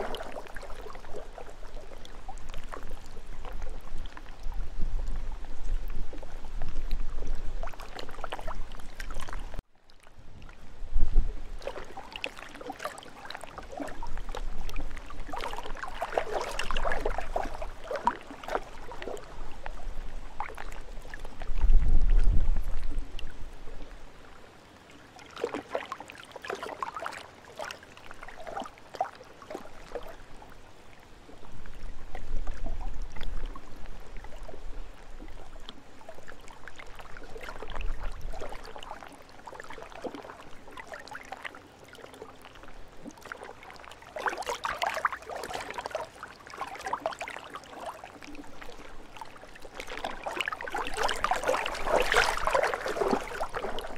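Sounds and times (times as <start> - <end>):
wind rumbling on microphone: 0.0 - 12.2, 13.4 - 24.4, 29.8 - 39.0
lake waves splashing: 0.0 - 53.9.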